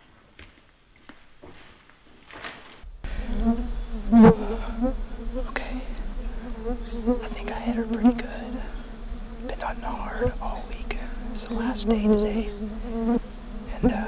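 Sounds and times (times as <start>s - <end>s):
flying insects buzzing: 2.8s - 14.0s.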